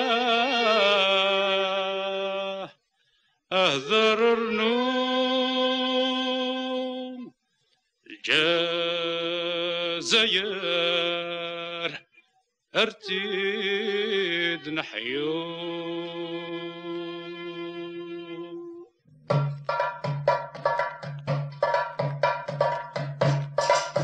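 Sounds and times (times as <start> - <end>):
man chanting unaccompanied: 12.8 - 18.6.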